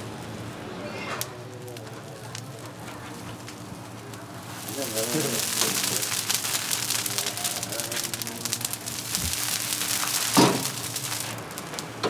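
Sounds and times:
fish sizzling on grill: 0.0 - 12.0
water spray hissing: 4.4 - 11.5.

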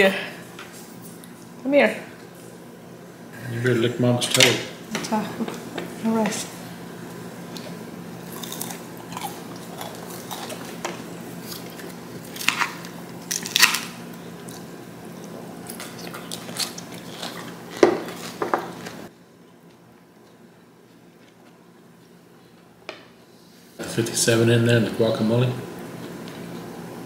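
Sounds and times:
crunching bites of food: 8.3 - 10.8, 11.4 - 18.4.

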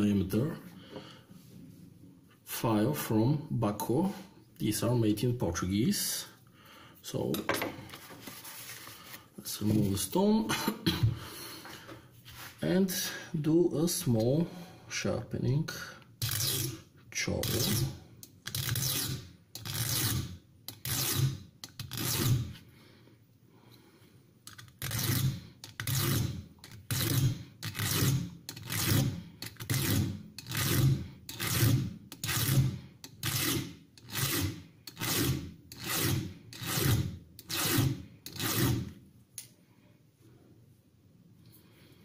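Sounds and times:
file rasping on steel blade: 16.2 - 16.8, 17.4 - 22.6, 24.8 - 38.9.

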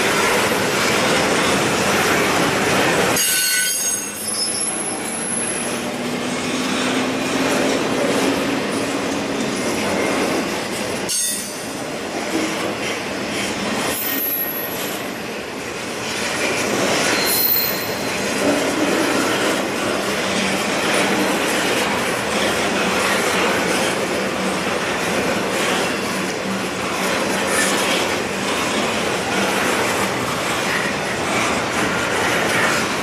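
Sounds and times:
freight train rumbling past: 0.0 - 33.0
high-pitched wheel squeals: 3.2 - 5.8, 11.1 - 11.6, 13.9 - 14.8, 17.1 - 18.2.

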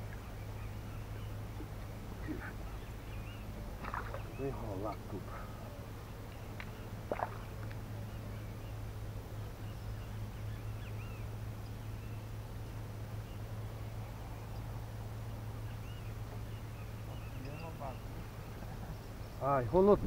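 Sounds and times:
fish splashing water: 3.7 - 5.0, 6.7 - 7.8
faint bird chirps: 15.6 - 19.5.

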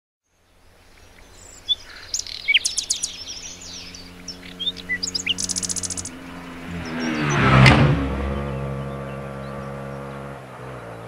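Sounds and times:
faint engine hum: 0.2 - 11.0
songbirds chirping and singing: 0.3 - 10.4.

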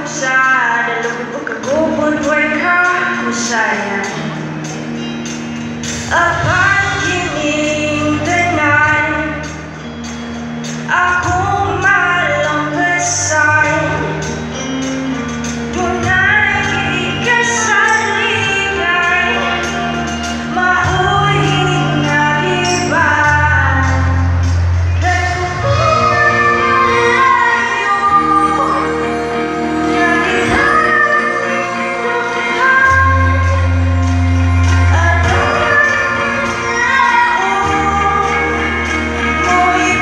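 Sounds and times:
live band playing: 0.0 - 40.0
person singing: 10.8 - 40.0.

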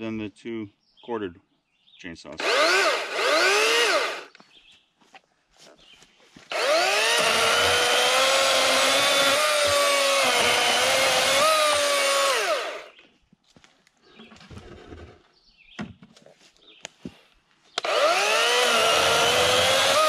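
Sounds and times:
chainsaw cutting through log: 2.4 - 4.3, 6.5 - 12.9, 17.8 - 20.0
battery chainsaw whining: 2.4 - 4.4, 6.5 - 12.9, 17.8 - 20.0.

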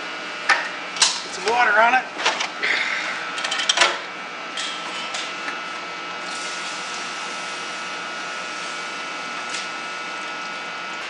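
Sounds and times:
water sizzling on hot metal: 6.2 - 9.7.

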